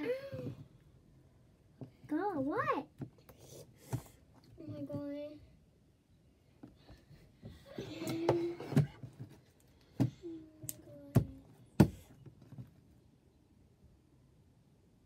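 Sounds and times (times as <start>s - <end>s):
sharp knocks and thumps: 11.1s - 12.7s.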